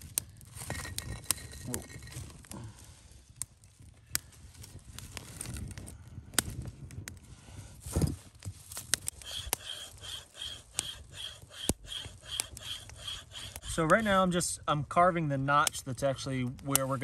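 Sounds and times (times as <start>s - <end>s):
campfire crackling and popping: 0.0s - 17.0s
knife scraping wood: 9.1s - 14.0s.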